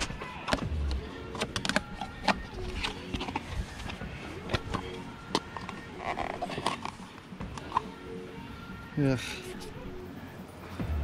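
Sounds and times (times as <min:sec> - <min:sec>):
plastic parts clicking and knocking: 0:00.0 - 0:07.9.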